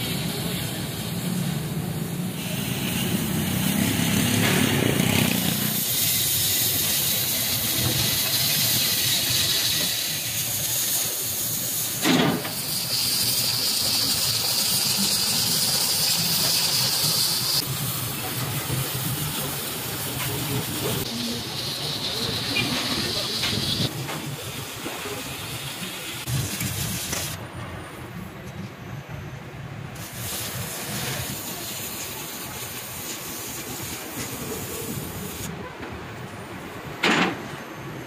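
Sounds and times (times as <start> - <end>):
cutting torch hissing: 0.0 - 27.4, 30.0 - 35.5.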